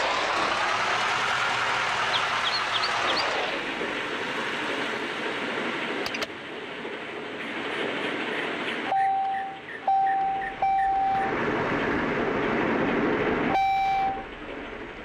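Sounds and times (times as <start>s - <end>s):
outdoor rushing noise: 0.0s - 9.9s, 10.6s - 15.0s
small bird chirping: 2.1s - 3.3s.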